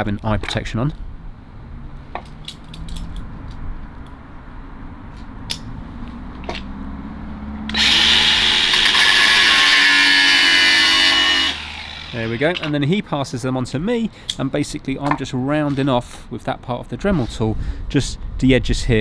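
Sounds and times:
angle grinder cutting metal: 7.7 - 12.8.

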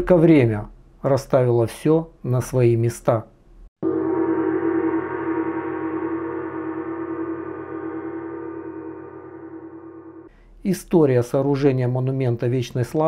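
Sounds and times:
gong ringing: 3.8 - 10.3.

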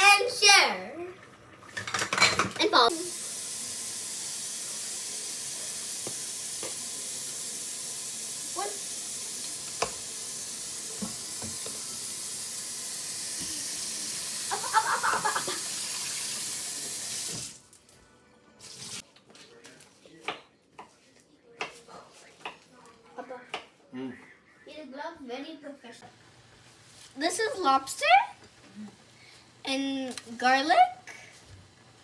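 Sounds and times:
water running from tap: 0.2 - 17.6, 18.6 - 19.0.

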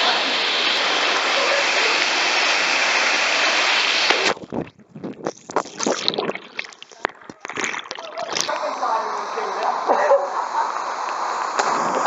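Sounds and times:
rushing water: 0.0 - 12.0
splashing and sloshing water: 5.3 - 8.7.

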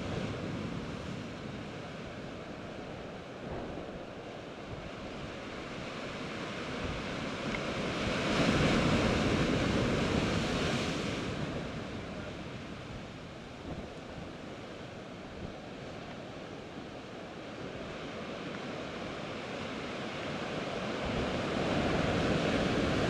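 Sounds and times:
wave breaking over rocks: 0.0 - 14.9
sea surf against rocky shore: 0.0 - 23.0.

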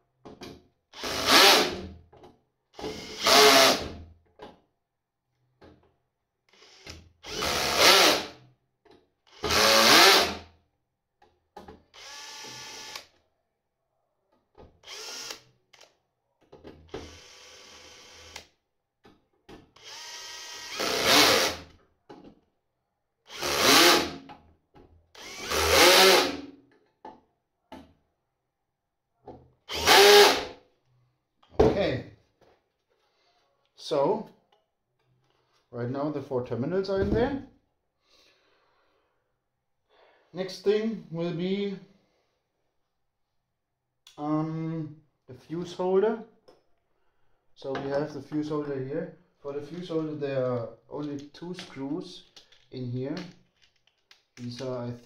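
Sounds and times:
cordless drill driving screws: 0.9 - 1.9, 2.8 - 3.9, 6.5 - 8.4, 9.3 - 10.4, 11.9 - 13.1, 14.8 - 15.9, 16.9 - 18.5, 19.8 - 21.7, 23.3 - 24.2, 25.2 - 26.5, 29.7 - 30.6.

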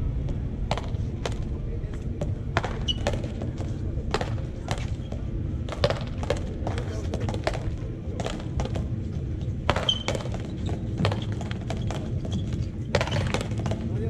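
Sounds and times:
low background noise: 0.0 - 14.0
ball cracking off wooden paddles: 2.5 - 8.9, 9.6 - 14.0.

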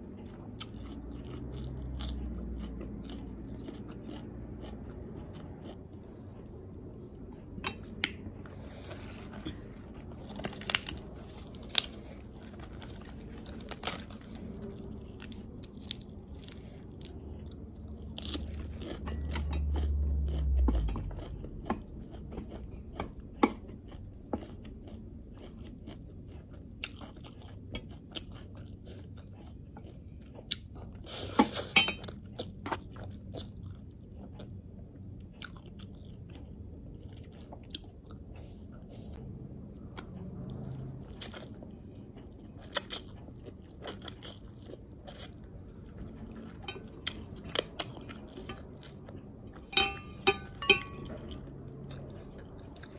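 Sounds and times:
lettuce crunching and chewing: 0.0 - 52.9
low rumble: 0.4 - 25.4.

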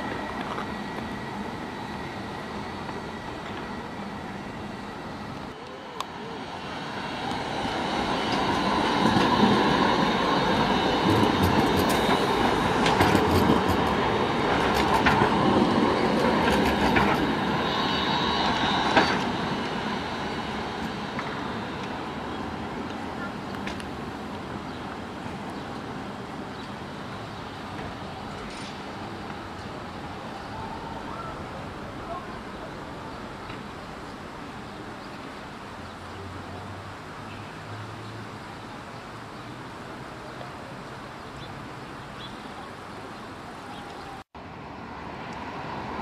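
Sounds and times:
tram running noise: 0.0 - 46.0
wheels clacking on rails: 7.1 - 30.0.

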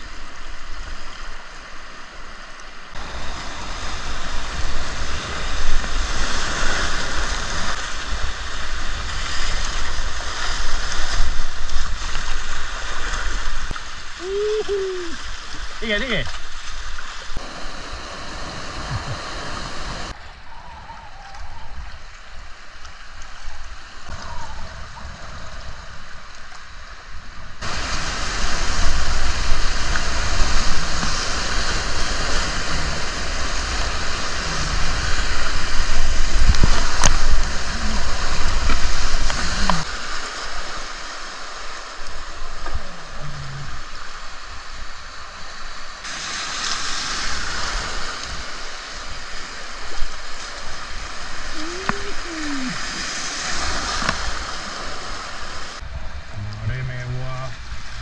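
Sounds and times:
river whitewater rushing: 17.4 - 20.2, 27.6 - 43.1, 46.1 - 55.8.

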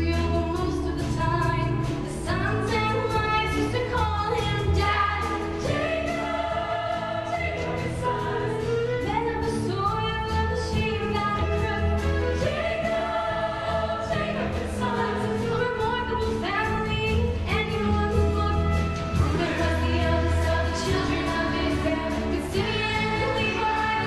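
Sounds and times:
instrumental accompaniment: 0.0 - 24.0
cast and choir singing: 4.8 - 8.9, 12.0 - 15.6, 19.2 - 24.0.

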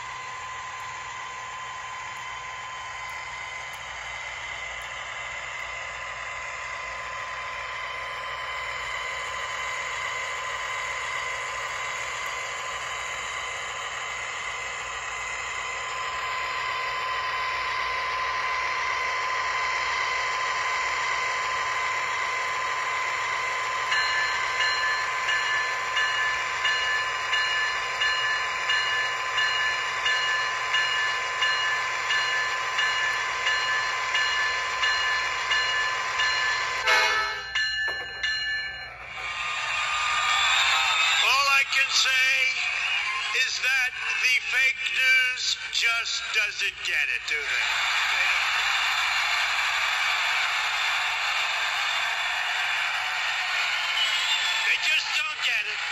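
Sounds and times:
diesel engine sound: 0.0 - 48.4
locomotive bell ringing: 21.6 - 39.2.

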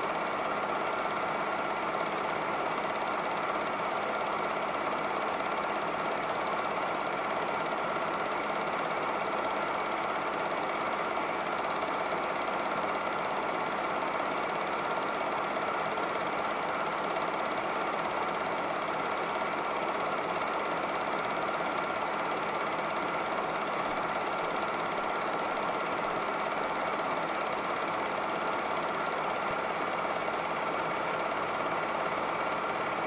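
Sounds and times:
film projector clattering: 0.0 - 33.0.

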